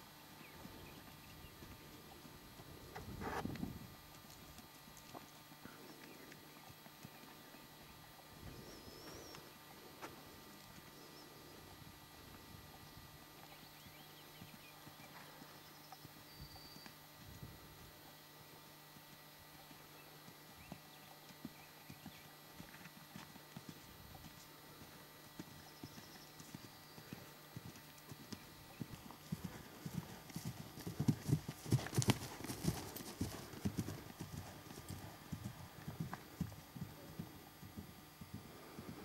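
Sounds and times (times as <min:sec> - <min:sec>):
horse hoofbeats on sand: 0:25.8 - 0:39.0.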